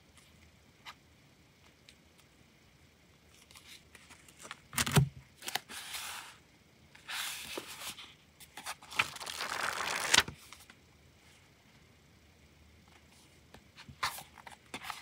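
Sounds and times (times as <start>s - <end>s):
paper rustling and sliding: 5.5s - 6.4s, 7.0s - 10.7s
thin sheet crinkling: 8.6s - 10.7s.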